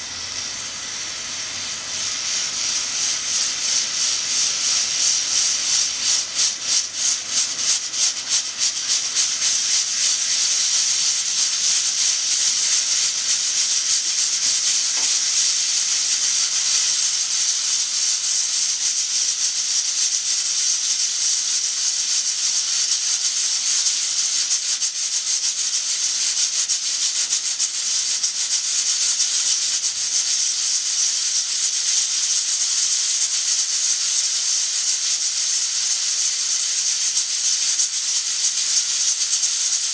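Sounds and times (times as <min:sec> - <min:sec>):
pressure cooker steam hissing: 0:00.0 - 0:39.9.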